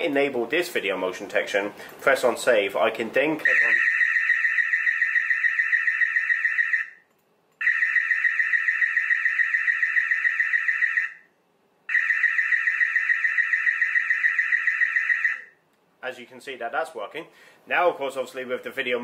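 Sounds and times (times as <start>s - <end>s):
warbling electronic siren: 3.5s - 7.0s, 7.6s - 11.3s, 11.9s - 15.6s.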